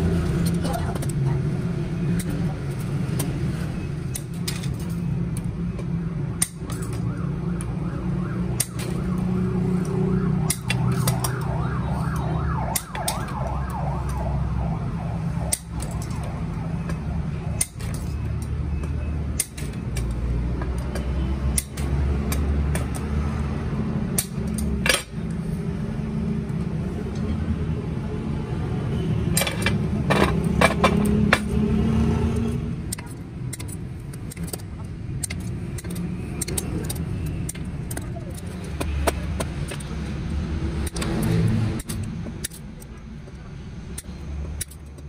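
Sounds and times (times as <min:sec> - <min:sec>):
hand snips cutting metal: 0:08.6 - 0:09.2, 0:17.6 - 0:18.2, 0:32.9 - 0:39.9.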